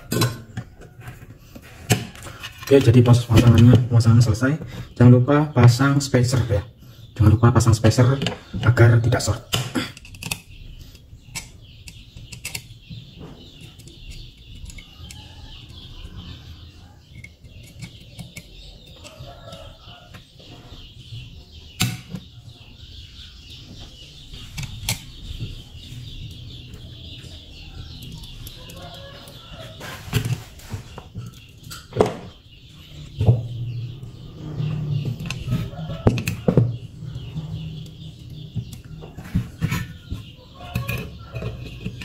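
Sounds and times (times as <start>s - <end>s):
small metal parts clicking: 9.5s - 12.8s.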